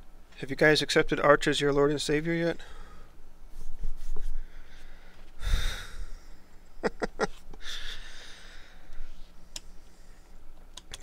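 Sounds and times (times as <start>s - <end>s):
man breathing: 2.6s - 3.2s, 4.2s - 6.6s, 7.6s - 10.5s
small clicks: 10.6s - 11.0s.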